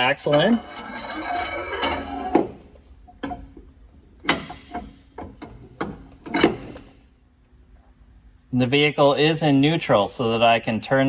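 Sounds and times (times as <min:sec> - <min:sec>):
metal clinks and knocks: 0:00.0 - 0:07.1.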